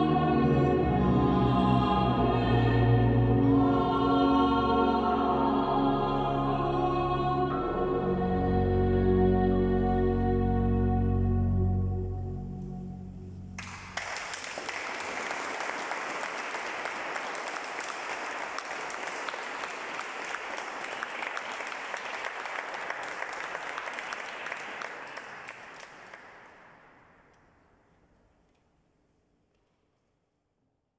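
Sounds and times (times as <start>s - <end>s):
ensemble final chord: 0.0s - 14.0s
audience applause: 13.6s - 26.7s.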